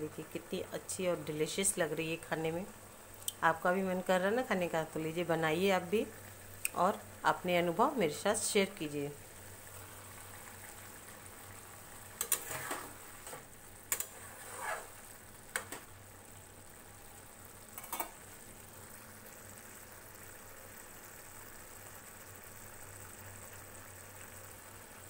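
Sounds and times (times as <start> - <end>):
gravy simmering and bubbling: 8.8 - 25.0.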